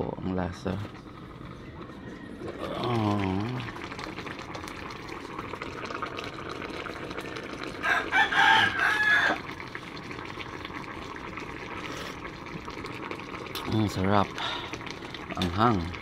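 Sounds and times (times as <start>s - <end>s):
stew bubbling in a pot: 0.0s - 16.0s
rooster crowing: 1.6s - 2.8s, 7.8s - 9.5s.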